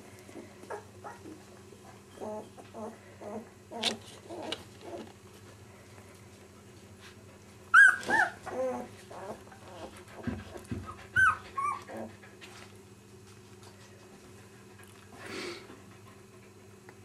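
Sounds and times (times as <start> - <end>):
dog yelping: 7.7 - 9.4, 11.1 - 12.1.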